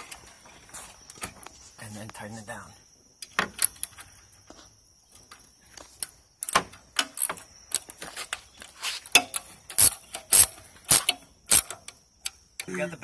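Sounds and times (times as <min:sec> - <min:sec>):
socket wrench ratcheting on metal: 0:09.3 - 0:12.0.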